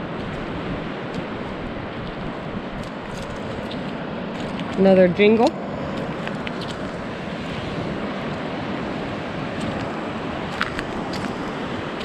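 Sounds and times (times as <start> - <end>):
surf wash: 0.0 - 12.0
wind buffeting microphone: 0.0 - 12.0.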